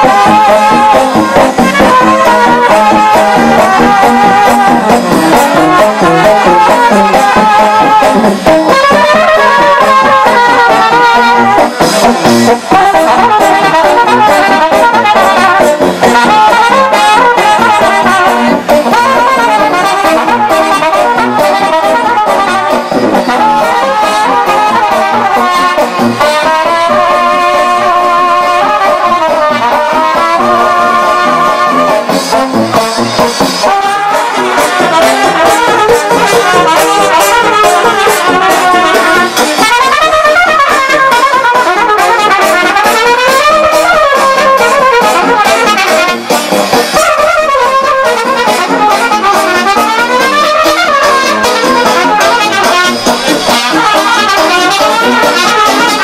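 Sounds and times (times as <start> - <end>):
steady drum beat: 0.0 - 27.1, 28.3 - 56.0
trumpets and tubas: 0.0 - 56.0.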